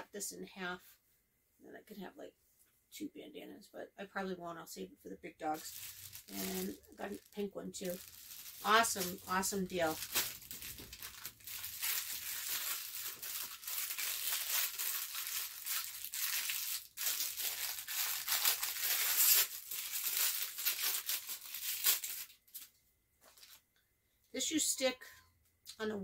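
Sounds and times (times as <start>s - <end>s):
plastic packaging crinkling and tearing: 5.5s - 22.7s, 23.3s - 23.6s.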